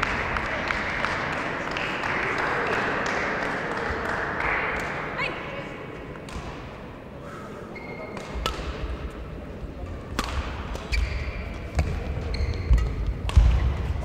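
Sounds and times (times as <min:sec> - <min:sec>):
rackets striking shuttlecock: 0:06.2 - 0:06.8, 0:08.1 - 0:09.2, 0:09.8 - 0:13.8
shoe squeaks: 0:07.8 - 0:08.2, 0:12.2 - 0:13.0.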